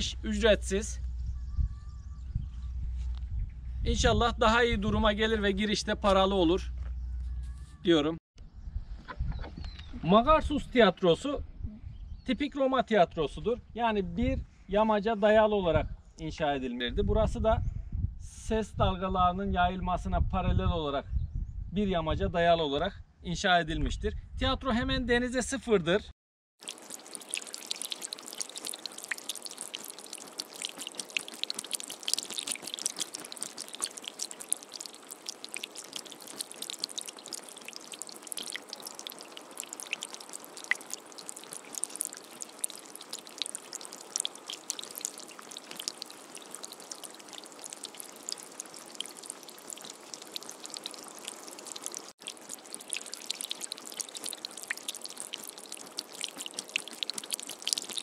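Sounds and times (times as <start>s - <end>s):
light rain pattering: 26.6s - 58.0s.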